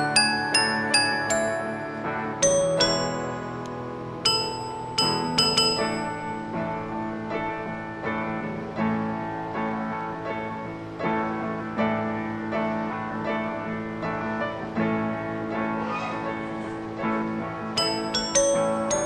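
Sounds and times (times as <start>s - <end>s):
gentle plucked melody: 0.0s - 8.1s, 17.7s - 19.0s.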